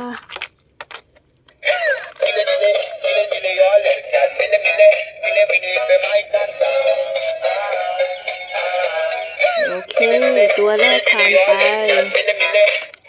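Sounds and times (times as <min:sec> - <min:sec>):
synthesized singing voice: 0:01.6 - 0:13.0.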